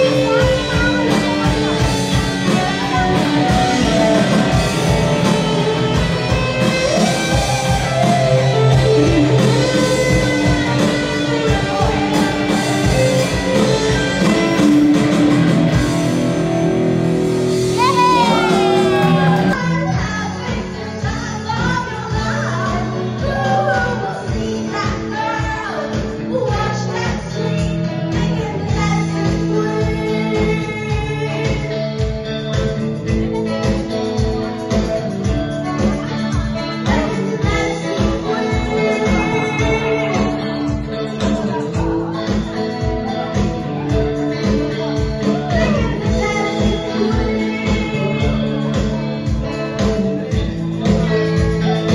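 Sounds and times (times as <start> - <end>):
person singing: 0.0 - 16.7, 17.5 - 32.0, 32.6 - 51.9
steady drum beat: 0.0 - 19.6
electric guitar: 0.0 - 51.9.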